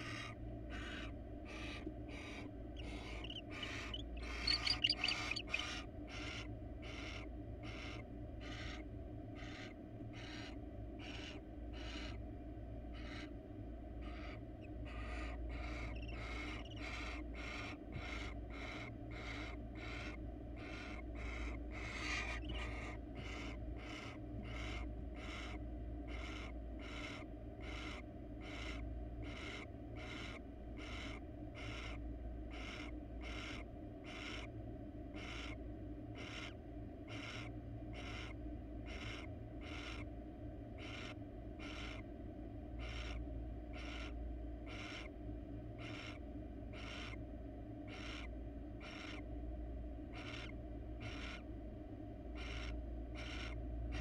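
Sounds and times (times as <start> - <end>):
owl rasping hisses: 0.0 - 6.4
steady low hum: 0.0 - 54.0.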